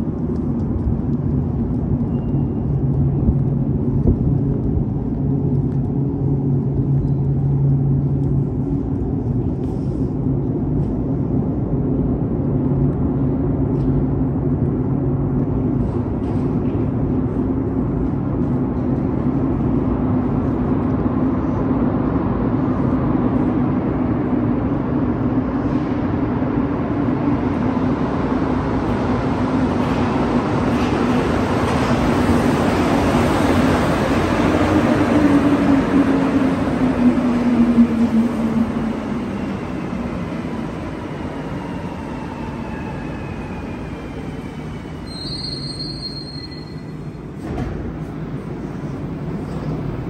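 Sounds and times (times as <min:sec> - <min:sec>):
low rumble and hum: 0:00.0 - 0:27.7
train approaching: 0:00.0 - 0:50.0.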